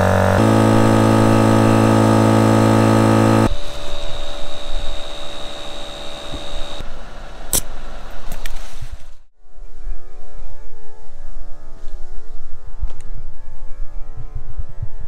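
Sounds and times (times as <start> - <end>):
air compressor humming: 0.0 - 6.8
rough noise with high whine: 0.0 - 8.0.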